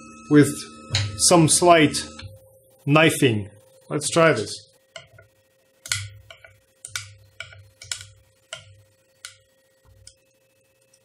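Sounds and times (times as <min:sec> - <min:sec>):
faint steady hum: 0:00.0 - 0:11.0
knife clicking and scraping: 0:05.8 - 0:08.6.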